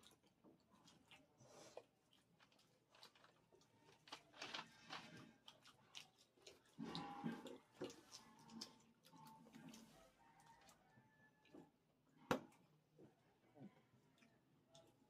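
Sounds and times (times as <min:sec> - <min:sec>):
crab shell cracking and chewing: 0:00.0 - 0:11.7.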